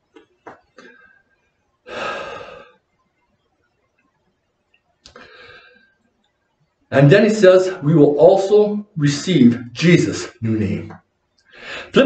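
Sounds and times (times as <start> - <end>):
man breathing: 1.9 - 2.8, 5.1 - 6.0, 11.5 - 12.0.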